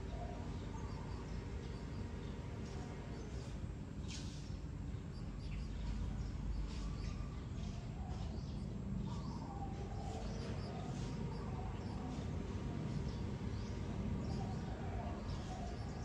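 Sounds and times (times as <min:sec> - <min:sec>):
low outdoor rumble: 0:00.0 - 0:16.0
small birds chirping: 0:00.0 - 0:16.0.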